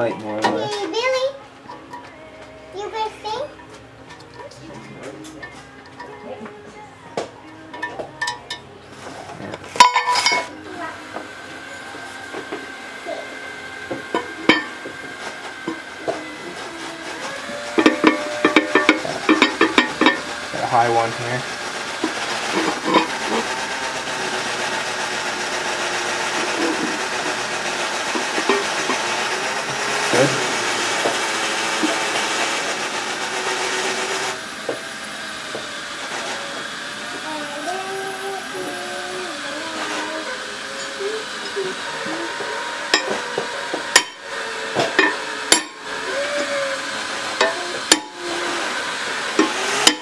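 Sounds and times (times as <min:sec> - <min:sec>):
machine whirring: 0:07.7 - 0:50.0
hammer striking metal plate: 0:09.8 - 0:10.4, 0:43.9 - 0:44.2, 0:45.0 - 0:45.8.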